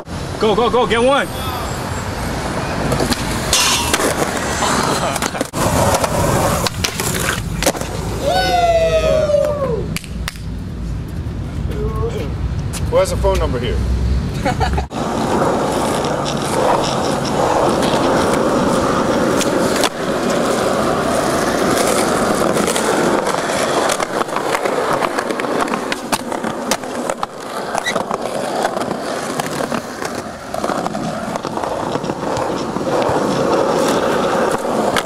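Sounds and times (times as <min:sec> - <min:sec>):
skateboard wheels rolling on concrete: 0:00.0 - 0:35.0
skateboard clacking on ground: 0:02.8 - 0:08.2, 0:15.0 - 0:35.0.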